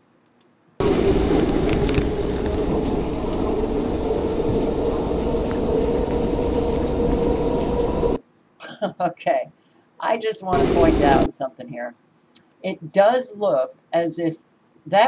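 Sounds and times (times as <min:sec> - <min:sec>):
subway car hum: 0:00.8 - 0:08.2, 0:10.4 - 0:11.3
water spraying and pouring: 0:00.8 - 0:08.2, 0:10.5 - 0:11.3.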